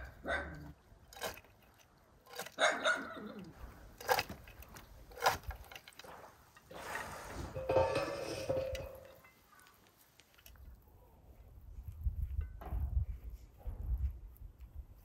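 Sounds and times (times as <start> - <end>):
dog barking: 0.0 - 0.7, 2.6 - 3.3.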